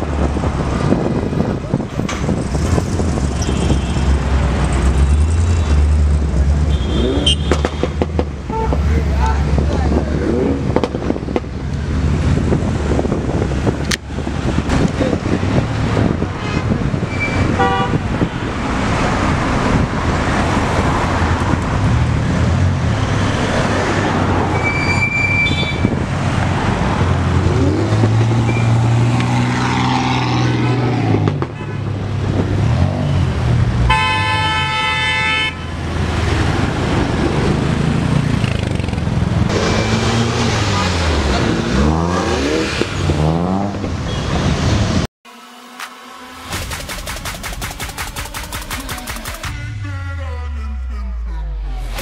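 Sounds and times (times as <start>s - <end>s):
cars driving past: 0.0s - 46.6s
car horns honking: 6.6s - 9.0s, 17.1s - 18.5s, 33.8s - 35.8s, 49.2s - 52.0s
engine revving: 36.1s - 44.0s.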